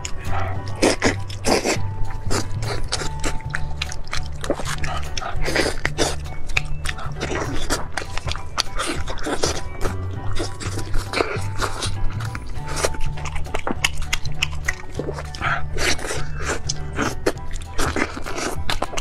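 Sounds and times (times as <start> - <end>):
background music with bass beat: 0.0 - 19.0
chicken being torn apart: 0.0 - 19.0
wet chewing and lip smacks: 0.0 - 19.0.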